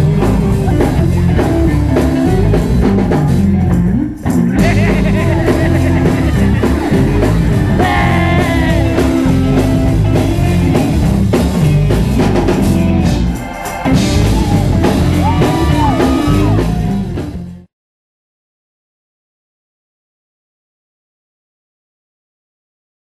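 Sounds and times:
gospel music with singing voices: 0:00.0 - 0:17.3.

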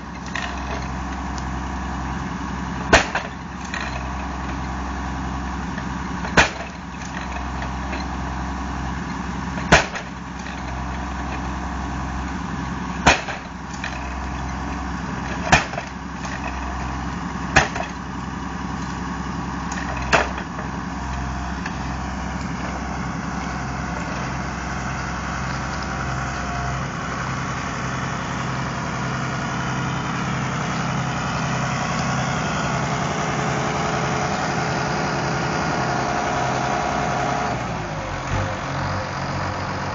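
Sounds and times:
tractor engine idling: 0:00.0 - 0:39.9
hammer striking wooden post: 0:02.9 - 0:03.4, 0:13.0 - 0:13.5, 0:17.6 - 0:18.0.

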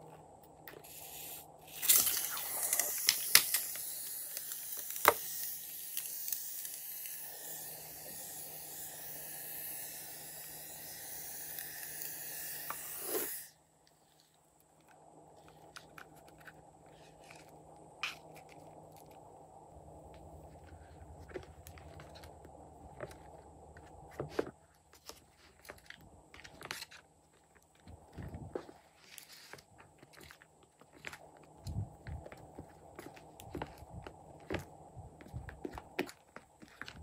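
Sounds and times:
foam hissing out of balloon: 0:00.8 - 0:13.6.

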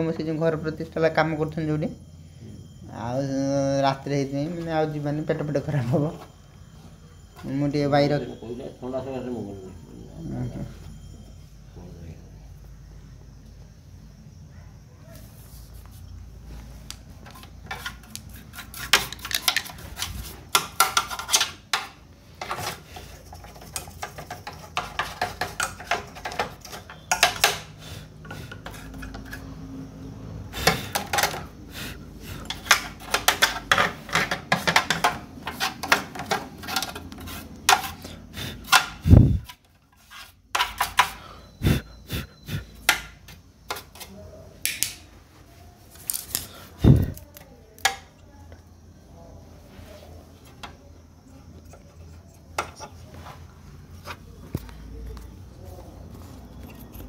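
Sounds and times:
metal and plastic parts clinking: 0:18.9 - 0:27.8.

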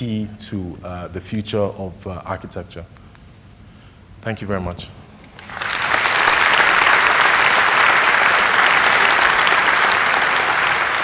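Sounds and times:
large audience applauding: 0:05.3 - 0:11.0.

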